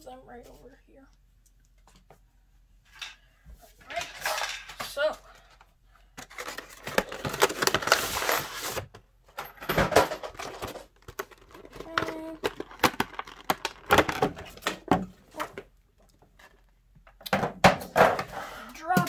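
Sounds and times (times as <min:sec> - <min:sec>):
plastic packaging crinkling: 0:11.0 - 0:14.6.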